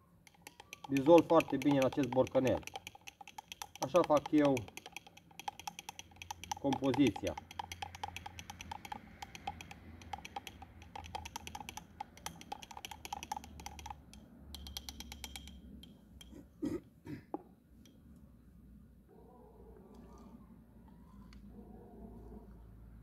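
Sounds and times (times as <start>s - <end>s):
stick clinking in glass jar: 0.3s - 16.4s.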